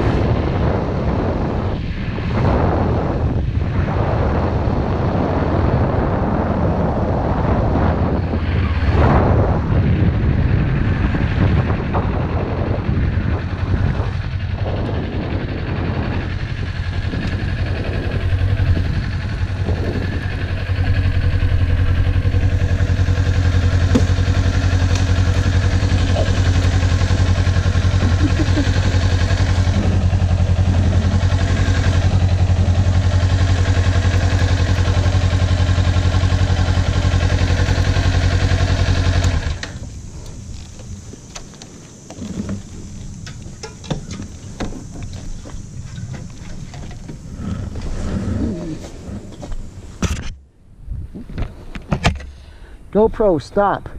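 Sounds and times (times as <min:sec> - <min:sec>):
motorcycle engine idling: 0:09.8 - 0:50.0.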